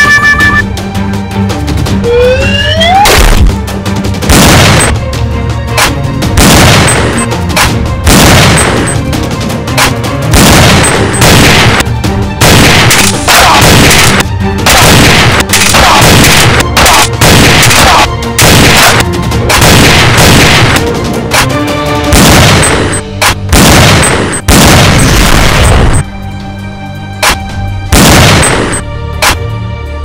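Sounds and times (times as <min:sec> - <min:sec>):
gunshot and explosion effects: 0:03.0 - 0:03.5, 0:04.2 - 0:05.0, 0:06.4 - 0:09.0, 0:10.3 - 0:20.8, 0:22.1 - 0:26.0, 0:27.2 - 0:29.4.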